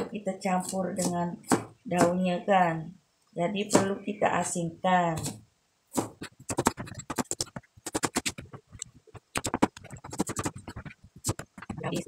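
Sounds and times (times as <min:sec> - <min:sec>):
cleaver chopping on cutting board: 0:06.0 - 0:08.4.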